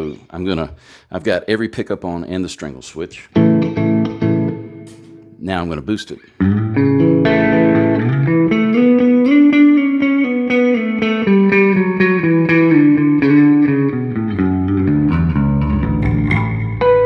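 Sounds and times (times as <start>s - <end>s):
overdriven bass guitar notes: 3.4s - 5.4s, 6.4s - 17.0s.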